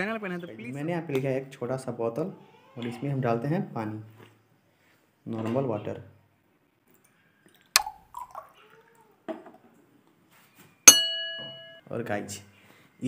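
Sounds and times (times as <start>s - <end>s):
glass bottle click: 7.8s - 8.0s
ringing glass clink: 10.9s - 11.9s.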